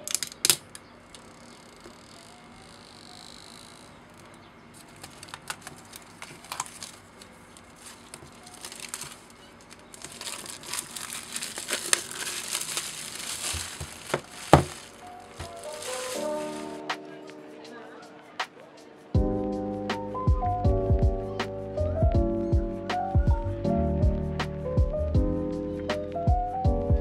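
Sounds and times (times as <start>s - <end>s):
packaging crinkling: 4.8s - 16.8s
paper seal strips tearing: 4.8s - 16.8s.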